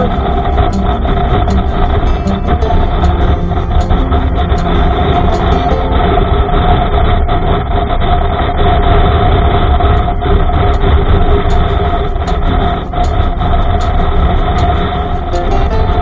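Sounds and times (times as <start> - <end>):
wind buffeting microphone: 4.4 - 16.0.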